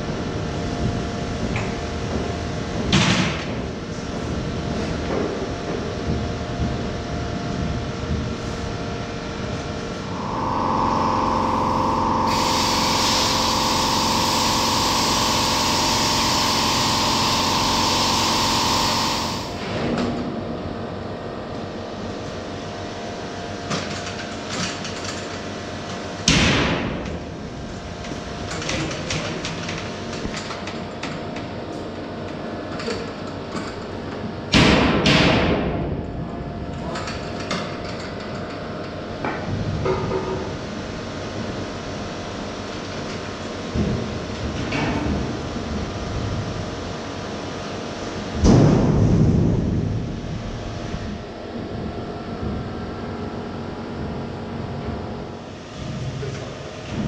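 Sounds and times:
power tool whining: 0:10.0 - 0:19.7
harsh hiss: 0:10.1 - 0:19.6.

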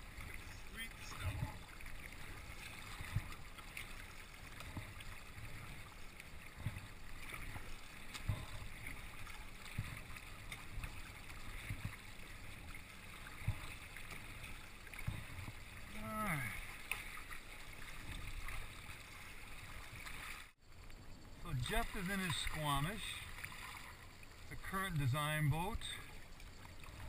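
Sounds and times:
water lapping against kayak hull: 0:00.0 - 0:27.0.

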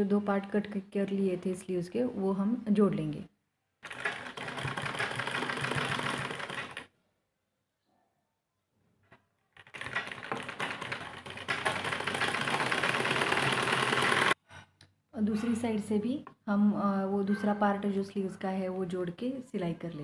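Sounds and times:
sewing machine stitching: 0:03.8 - 0:06.9, 0:09.6 - 0:14.4.

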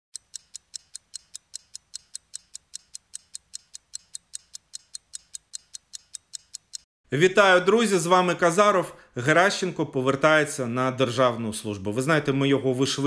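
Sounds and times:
fast even ticking: 0:00.1 - 0:06.9.

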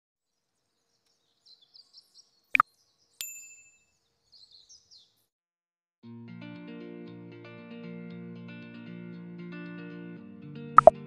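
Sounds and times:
high bird chirps: 0:03.8 - 0:05.2
sharp double click: 0:10.8 - 0:11.0.

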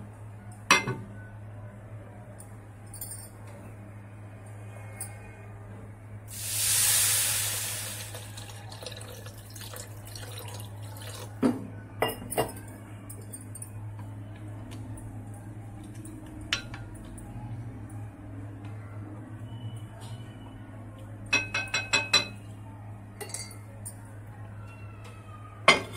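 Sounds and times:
water pouring into bowl: 0:06.3 - 0:11.4.

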